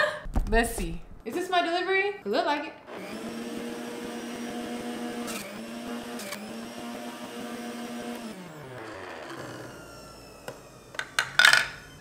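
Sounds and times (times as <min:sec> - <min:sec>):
juicer motor humming: 0:02.9 - 0:12.0.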